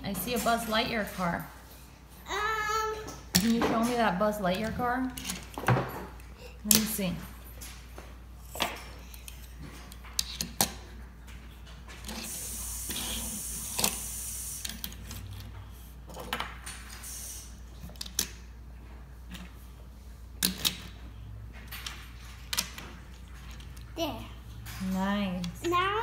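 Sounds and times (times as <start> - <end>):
toy cars clicking and knocking: 3.0 - 7.0, 8.4 - 18.5, 20.4 - 21.0, 21.6 - 24.0.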